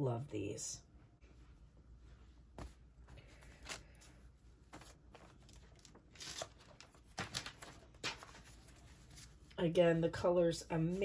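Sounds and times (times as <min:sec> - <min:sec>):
paper rustling and crinkling: 0:02.6 - 0:09.6.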